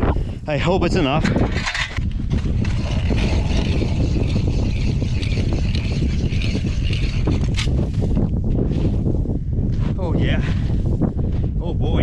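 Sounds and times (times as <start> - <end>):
wind rumbling on microphone: 0.0 - 12.0
ice auger drilling through ice: 2.4 - 7.8.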